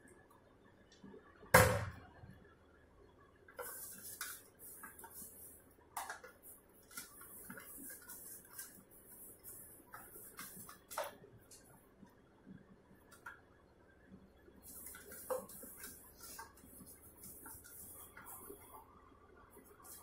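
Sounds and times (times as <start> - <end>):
hands rubbing off dough: 3.6 - 11.6, 14.6 - 18.8.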